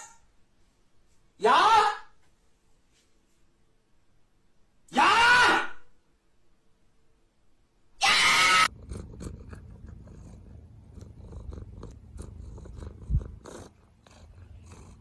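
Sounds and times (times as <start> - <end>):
cat sniffing at microphone: 8.7 - 15.0
low steady rumble: 8.7 - 15.0.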